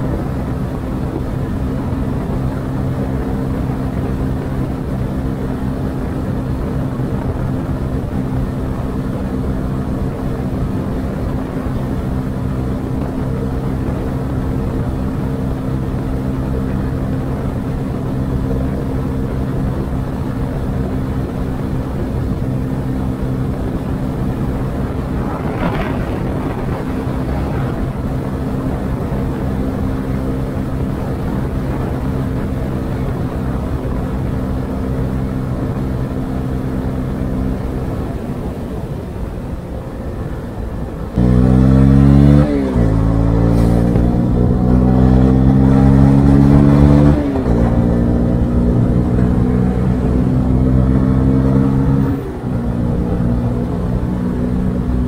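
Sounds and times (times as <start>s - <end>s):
motorcycle engine cruising: 0.0s - 55.0s
wind rushing over microphone: 0.0s - 55.0s.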